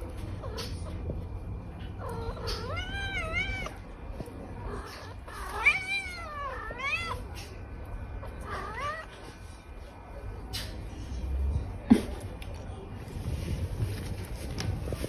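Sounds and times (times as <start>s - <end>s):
cat meowing: 2.0s - 3.9s, 4.7s - 7.4s, 8.2s - 9.3s.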